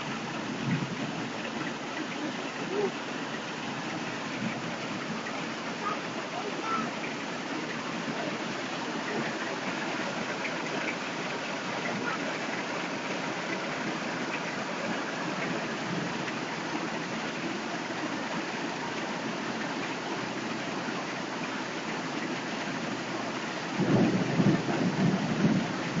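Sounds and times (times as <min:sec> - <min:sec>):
heavy rain pouring: 0:00.0 - 0:26.0.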